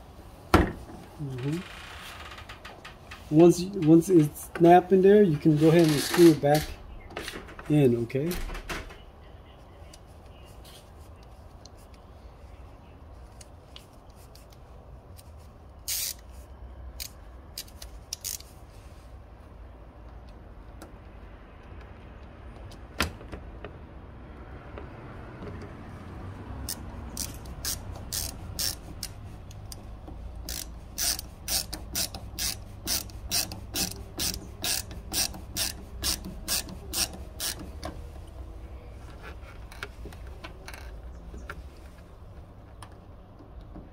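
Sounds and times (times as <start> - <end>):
ratcheting screwdriver clicking: 15.9 - 16.2, 26.6 - 38.0.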